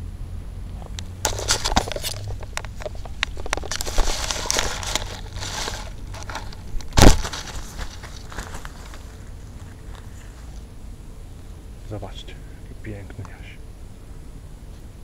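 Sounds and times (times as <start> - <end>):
handling noise on microphone: 0.8 - 10.7
loud bump: 6.9 - 7.7.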